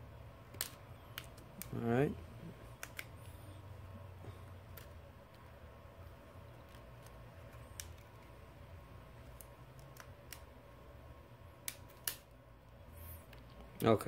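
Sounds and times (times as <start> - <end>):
small plastic clicks: 0.5 - 1.8, 2.7 - 3.2, 4.7 - 8.3, 9.3 - 10.5
sharp plastic snaps: 0.5 - 1.9, 2.6 - 3.3, 4.6 - 8.3, 9.2 - 10.6, 11.6 - 12.3.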